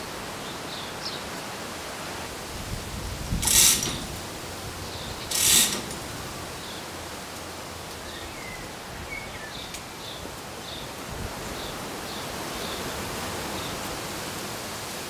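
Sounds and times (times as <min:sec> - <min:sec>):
outdoor background noise: 0:00.0 - 0:15.0
loud mechanical rasp: 0:03.4 - 0:04.2, 0:05.2 - 0:06.1.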